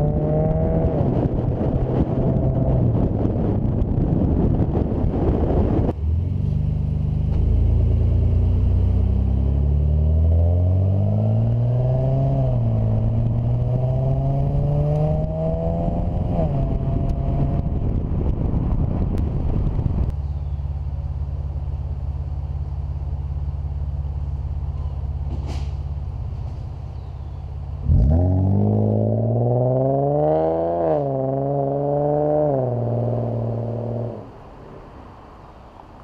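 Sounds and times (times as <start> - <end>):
car engine revving: 0.0 - 4.0, 4.8 - 18.1, 27.7 - 34.5.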